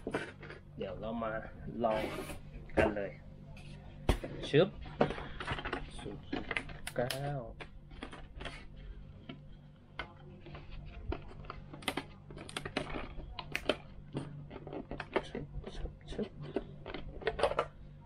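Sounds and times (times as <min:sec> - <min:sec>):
faint low hum: 0:00.0 - 0:18.0.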